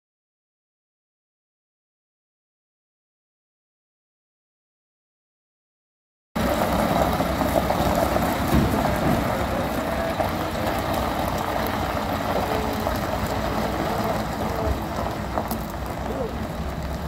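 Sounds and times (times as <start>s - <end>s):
truck diesel engine running: 6.4s - 17.0s.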